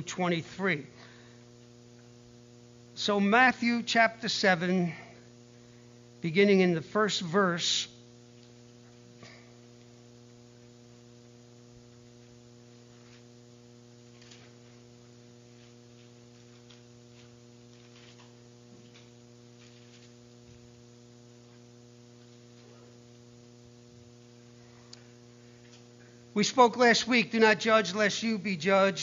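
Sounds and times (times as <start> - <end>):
electrical mains hum: 0.0 - 29.0
pages rustling: 15.5 - 20.2.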